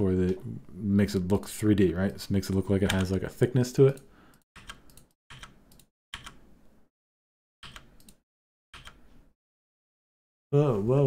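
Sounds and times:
keyboard and mouse clicks: 0:02.4 - 0:03.3, 0:03.9 - 0:06.4, 0:07.6 - 0:09.1.

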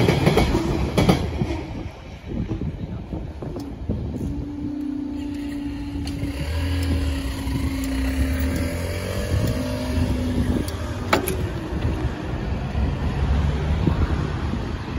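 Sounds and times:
vehicle engines rumbling: 0:02.1 - 0:14.9
droning tone: 0:04.2 - 0:11.1.

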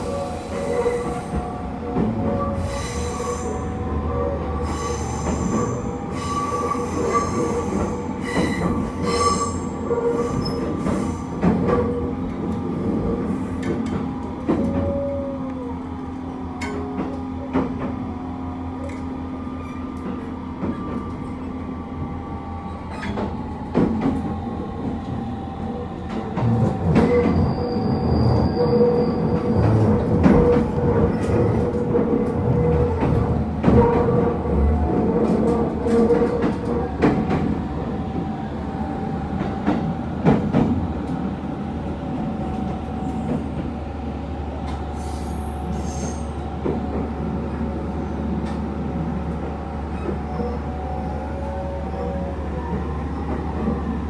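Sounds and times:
train rumble and hum: 0:00.0 - 0:54.0.

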